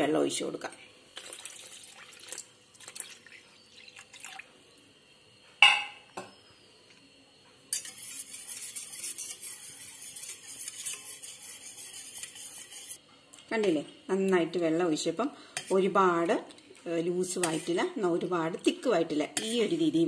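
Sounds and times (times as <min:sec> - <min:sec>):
water pouring into bowl: 0:01.2 - 0:04.5.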